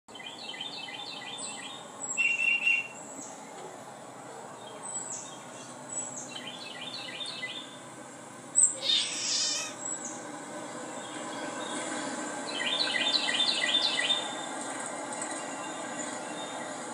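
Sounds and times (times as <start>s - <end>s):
recorded birdsong chirps: 0.1s - 16.9s
loud bird call: 0.2s - 3.4s, 8.6s - 10.2s.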